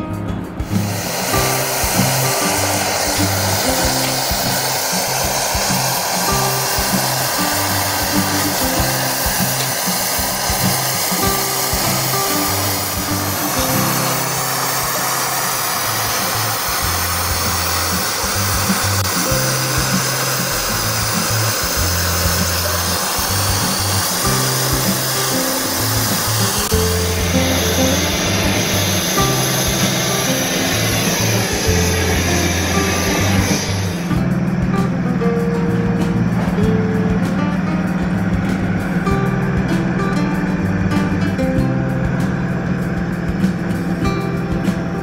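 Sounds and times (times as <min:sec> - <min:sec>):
background music with bass line: 0:00.0 - 0:45.0
gas torch flame hissing: 0:00.6 - 0:34.7.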